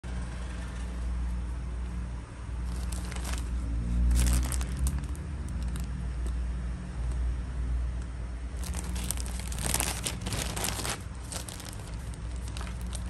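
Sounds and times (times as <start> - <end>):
steady low hum: 0.0 - 13.0
plastic bag crinkling: 2.6 - 6.0, 8.6 - 13.0.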